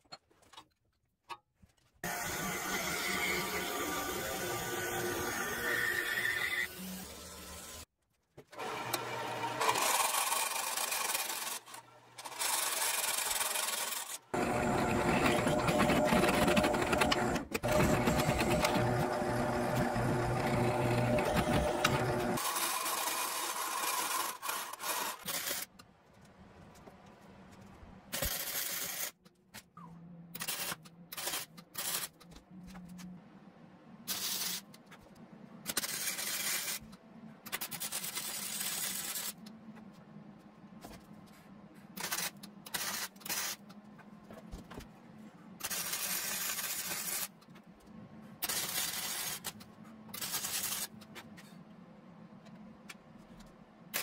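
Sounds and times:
machine tool motor running: 12.3s - 24.6s.

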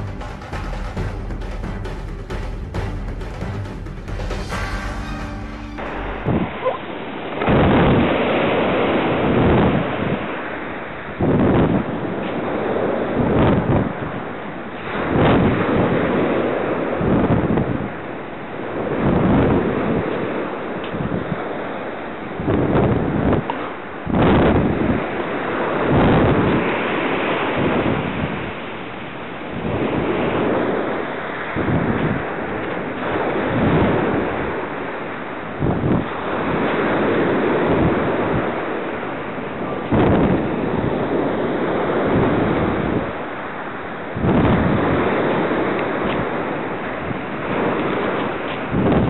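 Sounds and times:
wind buffeting microphone: 22.4s - 28.6s, 29.5s - 49.0s.

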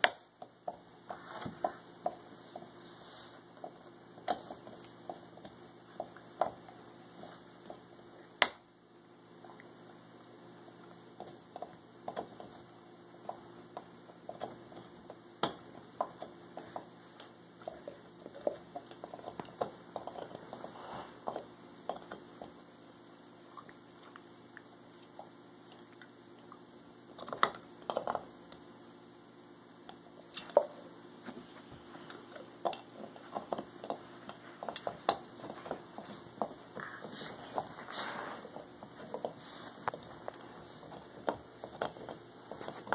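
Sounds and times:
steady low hum: 0.0s - 42.9s
dog gnawing on chew toy: 11.2s - 22.6s, 29.9s - 42.9s.

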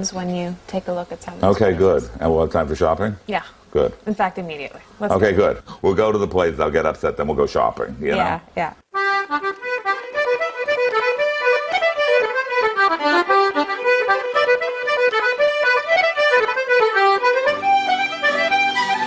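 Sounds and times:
fast instrumental tune: 9.0s - 19.0s.

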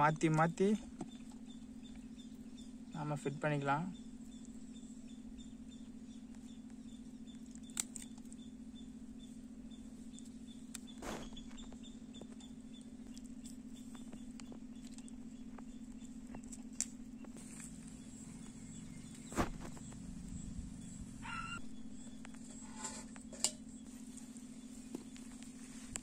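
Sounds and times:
low hum: 0.0s - 26.0s
faint high chirps: 17.2s - 25.4s.

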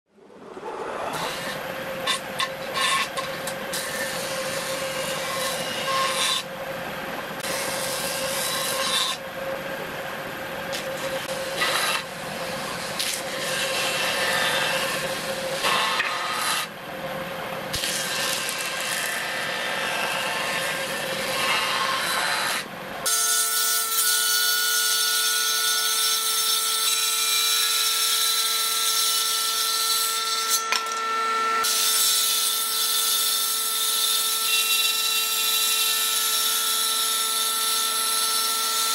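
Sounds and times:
circular saw whining: 0.1s - 6.6s, 17.7s - 23.3s.

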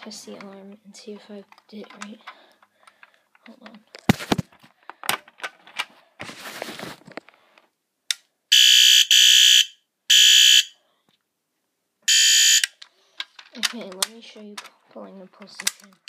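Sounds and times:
fire alarm horn buzzing: 8.5s - 10.8s, 12.1s - 12.7s.

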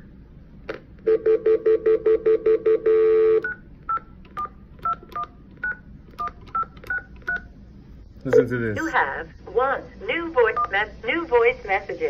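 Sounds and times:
touch-tone keypad beeps: 3.4s - 7.5s.

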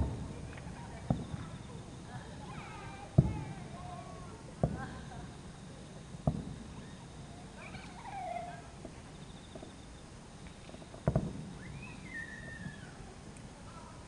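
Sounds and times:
distant fireworks booming: 0.0s - 14.0s
faint gliding calls: 0.0s - 14.0s.

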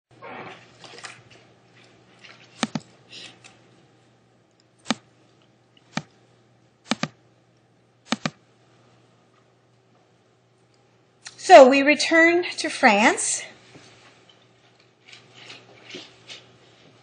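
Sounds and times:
faint steady hum: 0.2s - 17.0s
computer mouse clicks: 2.6s - 2.8s, 6.9s - 7.2s, 8.1s - 8.4s.

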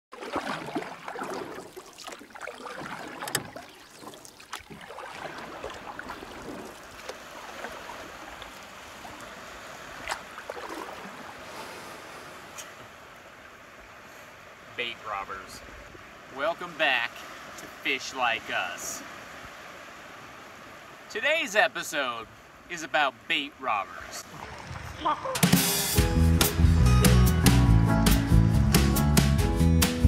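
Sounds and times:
surf washing on a beach: 4.8s - 25.9s
wind noise: 24.2s - 25.7s.

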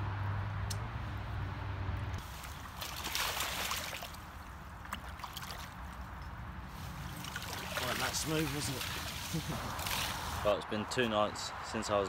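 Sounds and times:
fish splashing in water: 2.2s - 6.0s, 7.0s - 10.4s
water sloshing and dripping: 2.2s - 10.4s.

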